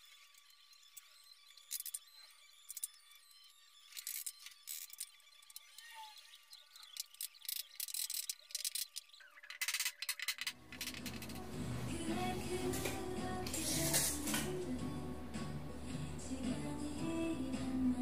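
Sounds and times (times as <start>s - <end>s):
radio music: 10.8s - 18.0s.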